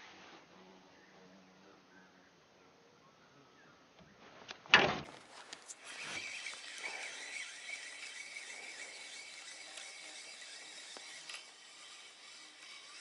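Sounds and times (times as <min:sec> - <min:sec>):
faint reel clicks: 0:05.5 - 0:13.0
spinning reel whirring: 0:05.6 - 0:13.0.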